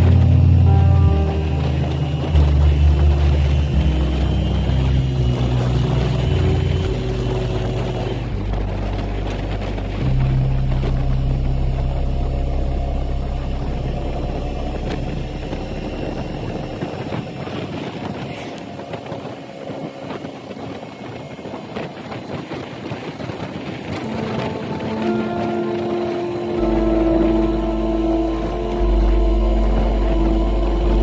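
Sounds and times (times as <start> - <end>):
motorcycle engine running: 0.0 - 20.6
wind rush: 0.0 - 31.0.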